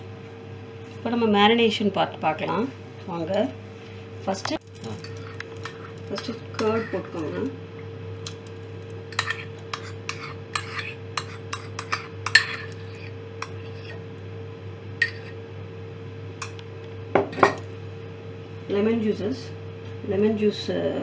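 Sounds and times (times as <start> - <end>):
steady low hum: 0.0 - 21.0
spoon clinking against dishes: 4.8 - 7.1, 9.1 - 14.0, 15.0 - 15.4, 16.4 - 16.6.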